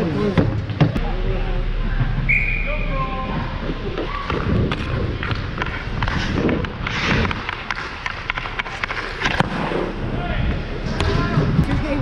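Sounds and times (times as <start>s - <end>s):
skates scraping on ice: 4.0s - 12.0s
hockey stick clicking on puck: 4.3s - 9.7s.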